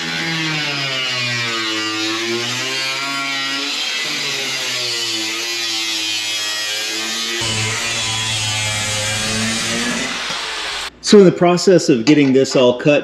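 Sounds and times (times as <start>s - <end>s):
angle grinder motor whine: 0.0s - 10.9s
hiss of grinding metal: 7.4s - 10.9s.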